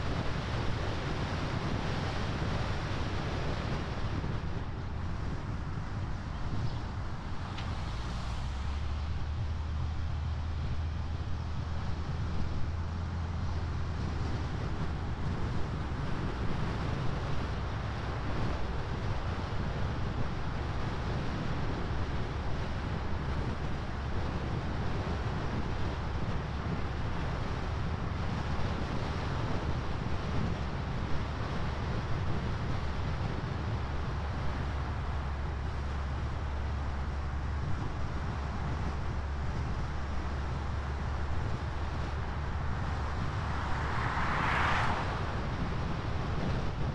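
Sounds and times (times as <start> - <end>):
tyre rumble on highway: 0.0 - 46.9
wind rush: 0.0 - 46.9.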